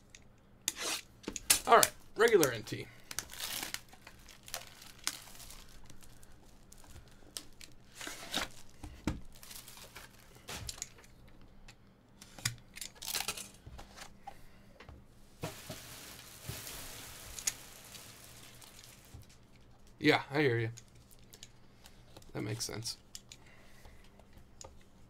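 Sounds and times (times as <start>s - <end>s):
plastic wrap tearing and crinkling: 0.8s - 11.0s, 13.0s - 13.5s, 15.4s - 20.0s
rustling: 1.7s - 11.0s, 15.4s - 20.0s.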